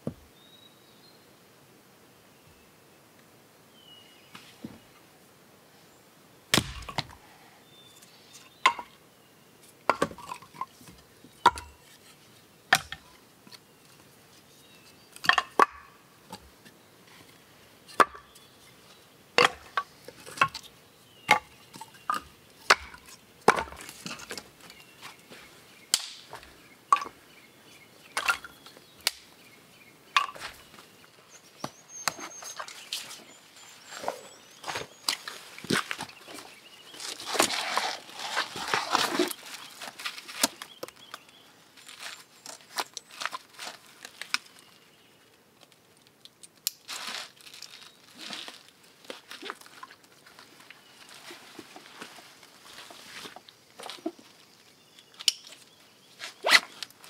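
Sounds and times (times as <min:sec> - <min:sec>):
wood chopping: 0:06.5 - 0:07.2, 0:22.1 - 0:23.8, 0:25.9 - 0:27.1.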